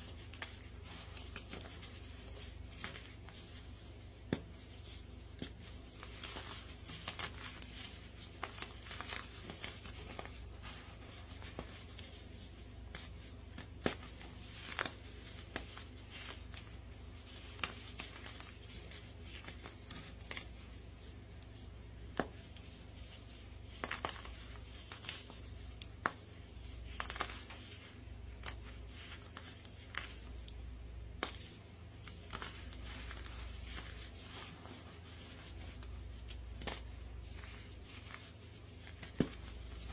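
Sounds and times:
fingers crushing baking soda block: 23.8s - 26.2s, 26.8s - 27.6s.

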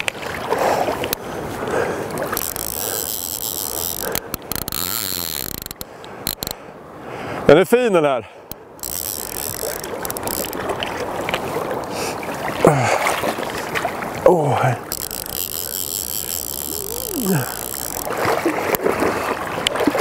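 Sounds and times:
fishing reel drag buzzing: 2.1s - 6.6s, 8.5s - 10.8s, 14.8s - 18.3s
river water rushing: 8.6s - 20.0s
falling-pitched voice-like sounds: 16.7s - 17.5s.

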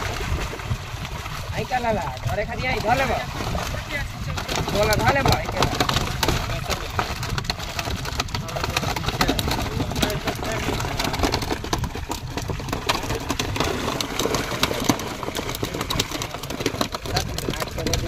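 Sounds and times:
fish thrashing and splashing: 0.0s - 18.0s.

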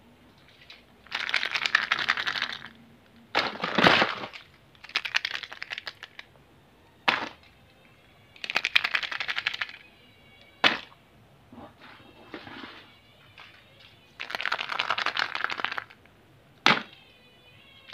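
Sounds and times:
plastic eggs clattering: 0.6s - 6.3s, 8.4s - 9.8s, 14.2s - 16.9s.

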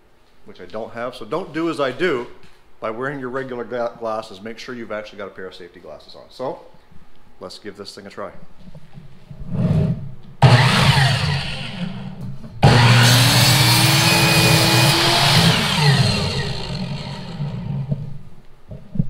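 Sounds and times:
saw blade cutting wooden board: 10.4s - 18.0s
mitre saw motor running: 10.4s - 18.1s.

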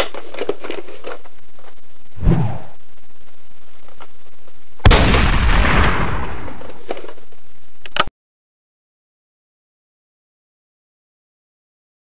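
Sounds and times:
gunshot blast: 4.8s - 6.6s.

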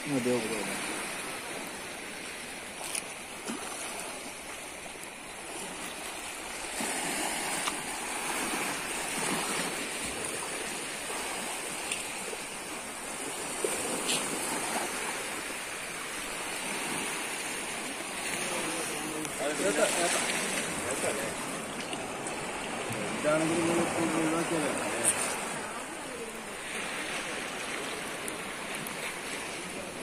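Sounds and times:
waves washing over rocks: 0.0s - 30.0s.

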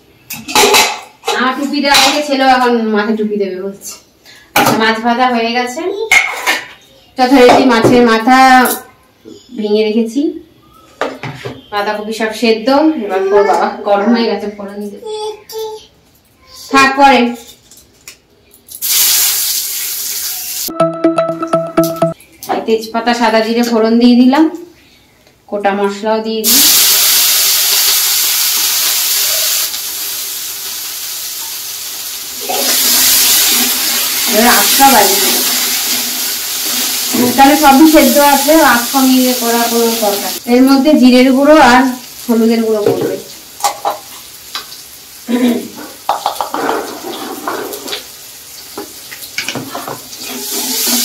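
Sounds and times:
spices sizzling in hot oil: 18.7s - 20.7s, 26.4s - 51.0s.

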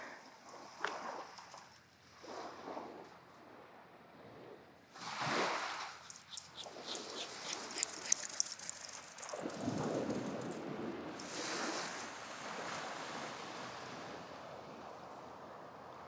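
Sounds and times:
small waves washing in: 4.9s - 15.4s
light clicks of dog running: 5.5s - 10.7s.

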